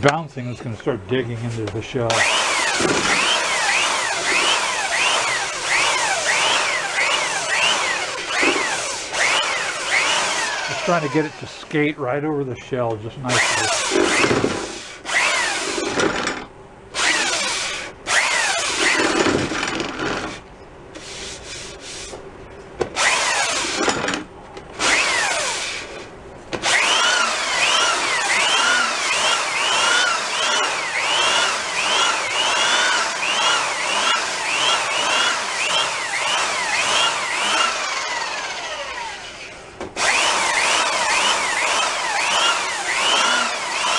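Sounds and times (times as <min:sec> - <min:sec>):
belt sander sanding wood: 0:01.4 - 0:11.9, 0:13.3 - 0:15.8, 0:21.0 - 0:22.2, 0:26.6 - 0:43.9.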